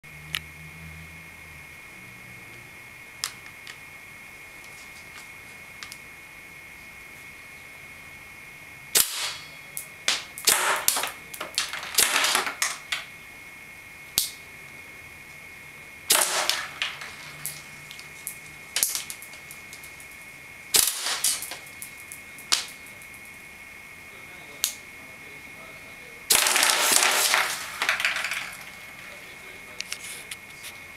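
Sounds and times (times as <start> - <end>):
airsoft gun firing: 9.0 - 9.5, 10.1 - 12.8, 16.1 - 17.6, 20.7 - 21.7, 26.3 - 28.7.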